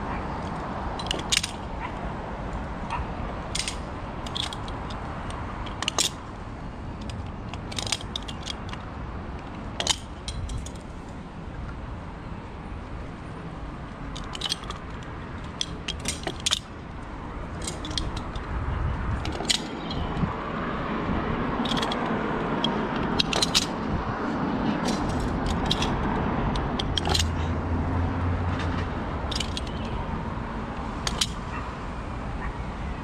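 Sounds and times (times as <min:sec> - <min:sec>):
steady rushing noise: 0:00.0 - 0:33.0
metal snap hooks clicking: 0:00.4 - 0:01.9, 0:02.9 - 0:06.3, 0:07.0 - 0:08.8, 0:09.8 - 0:10.8, 0:14.1 - 0:16.7, 0:17.5 - 0:20.3, 0:21.6 - 0:23.8, 0:24.8 - 0:27.5, 0:29.3 - 0:30.0, 0:31.0 - 0:31.6.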